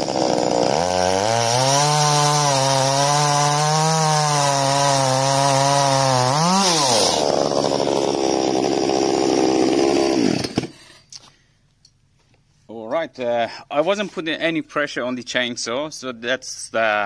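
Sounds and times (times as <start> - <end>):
chainsaw cutting through log: 0.0 - 11.1.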